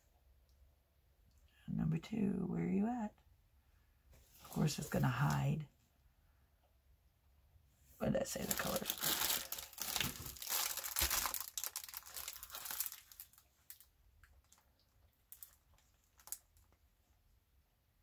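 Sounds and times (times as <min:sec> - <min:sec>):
plastic packaging crinkling: 0:08.2 - 0:16.8.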